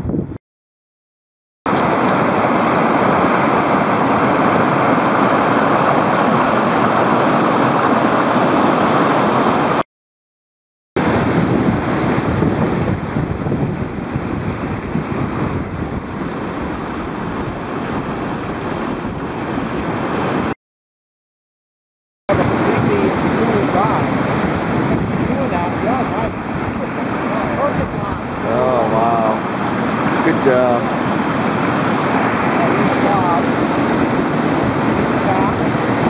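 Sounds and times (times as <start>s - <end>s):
whitewater rapids rushing: 1.7s - 9.8s, 14.4s - 20.6s, 22.3s - 36.0s.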